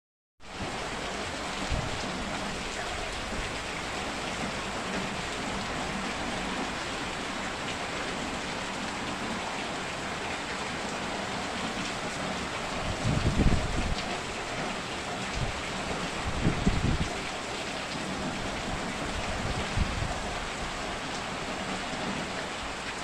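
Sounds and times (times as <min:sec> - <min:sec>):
heavy rain pouring: 0:00.4 - 0:23.0.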